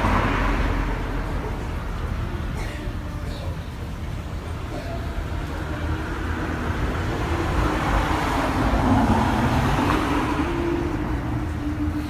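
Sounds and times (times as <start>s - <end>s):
vehicle passing: 0.0s - 2.4s, 5.1s - 12.0s.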